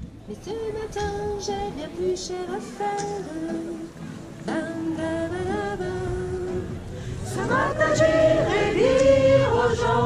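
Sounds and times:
choir singing a carol: 7.2s - 10.0s.

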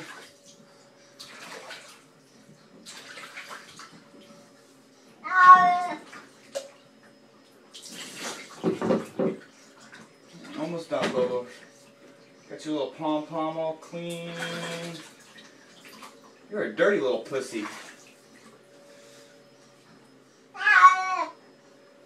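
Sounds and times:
cat meowing: 5.2s - 6.0s, 20.6s - 21.4s
water splashing: 14.1s - 16.2s, 17.5s - 18.2s.

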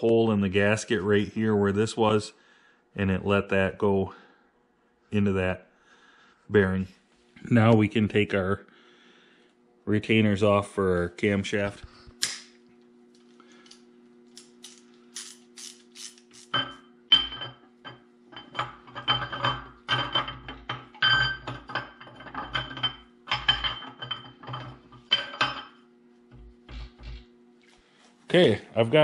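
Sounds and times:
faint steady hum: 0.0s - 29.0s
metal engine parts clinking: 14.4s - 25.8s.

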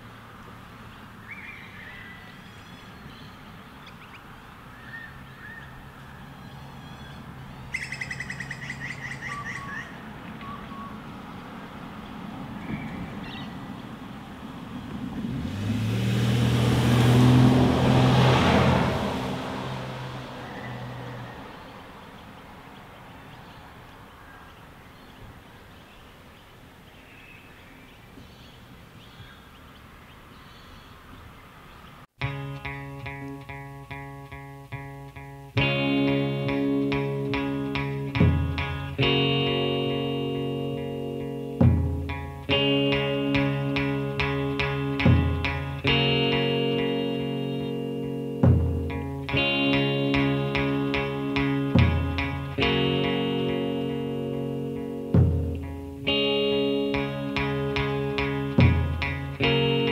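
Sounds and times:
bird chirps: 1.0s - 11.1s, 12.6s - 14.0s
car passing by: 4.5s - 25.5s.

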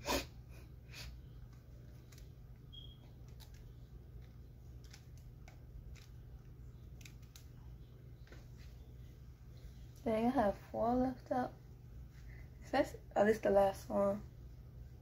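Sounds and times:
low steady hum: 0.0s - 15.0s
hair twisting clicks and rustles: 1.4s - 8.8s.

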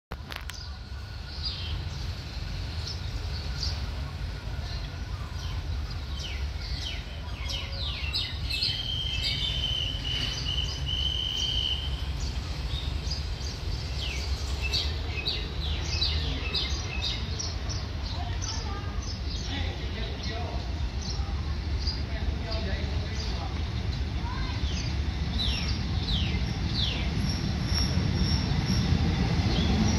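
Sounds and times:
constant low rumble: 0.1s - 8.7s
small birds chirping: 0.3s - 29.9s.

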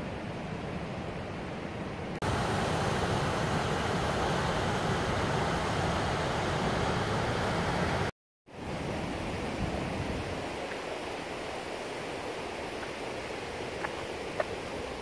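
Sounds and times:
waterfall rushing over rock: 2.2s - 8.1s.

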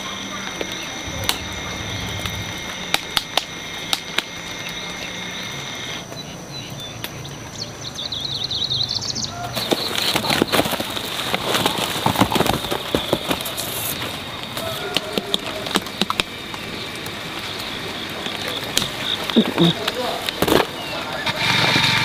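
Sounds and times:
crackling rustle with clicks: 9.5s - 22.0s.

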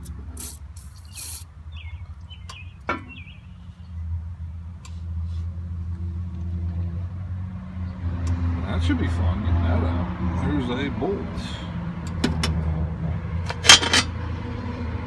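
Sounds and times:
low engine hum: 0.0s - 15.0s.

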